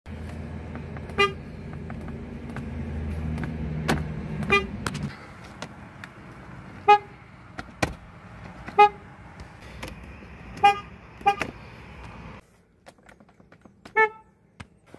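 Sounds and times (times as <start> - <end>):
thin car horn toots: 10.6 - 11.5.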